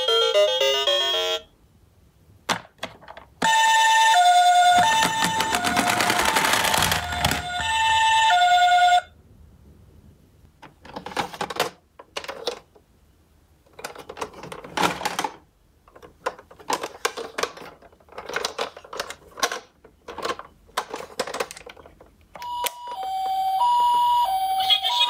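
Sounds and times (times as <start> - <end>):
toy electronic siren: 3.4 - 9.1, 22.4 - 25.0
plastic toys clattering in cardboard box: 4.8 - 7.9, 13.8 - 22.0.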